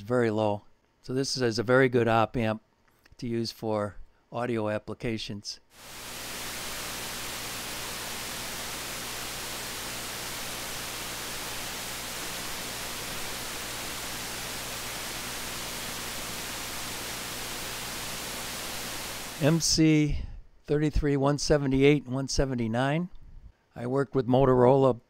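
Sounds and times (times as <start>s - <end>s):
low hum: 5.8s - 19.6s
steady electronic hiss: 5.8s - 20.1s.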